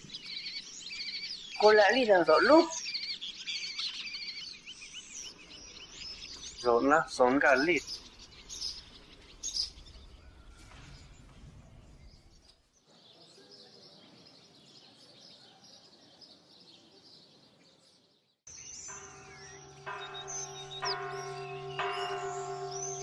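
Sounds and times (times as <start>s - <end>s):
small birds chirping: 0.0s - 23.0s
church bell ringing: 18.6s - 23.0s.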